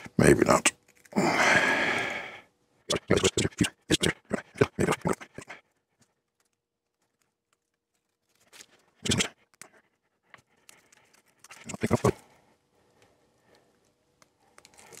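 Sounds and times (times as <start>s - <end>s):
paper film peeling and crackling: 0.7s - 1.2s, 6.2s - 12.1s, 13.5s - 15.0s.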